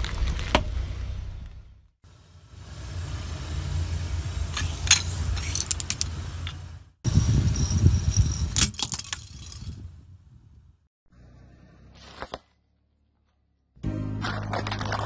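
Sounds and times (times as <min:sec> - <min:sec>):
car rumbling: 0:00.0 - 0:08.5.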